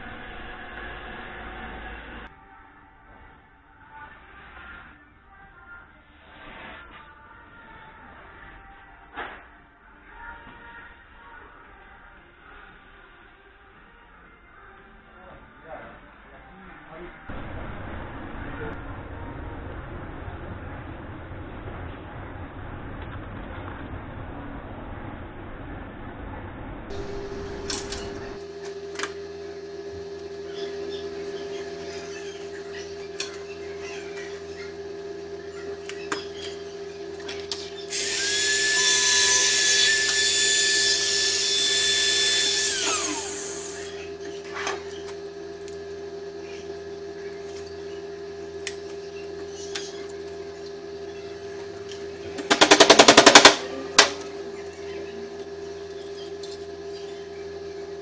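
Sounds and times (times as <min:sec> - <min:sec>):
steady hum: 0:17.2 - 0:30.2
power tool whining: 0:26.9 - 0:28.4, 0:37.4 - 0:45.1.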